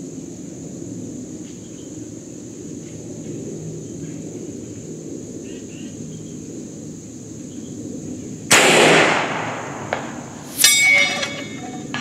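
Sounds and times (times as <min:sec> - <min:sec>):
air rifle shot: 0:08.5 - 0:10.6.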